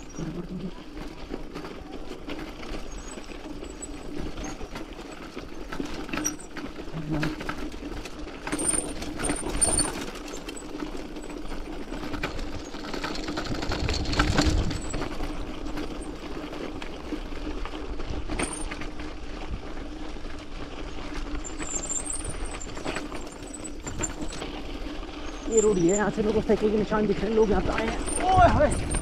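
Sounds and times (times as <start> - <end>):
tyres crunching on gravel: 0.0 - 29.0
bicycle hub ratchet buzzing: 21.3 - 26.1.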